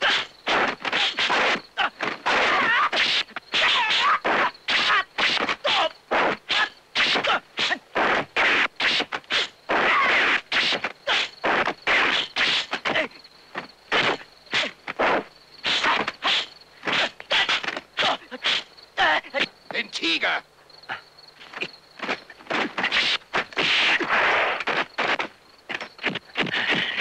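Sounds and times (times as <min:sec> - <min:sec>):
fight punches and blocks: 0:00.0 - 0:18.6, 0:21.5 - 0:27.0.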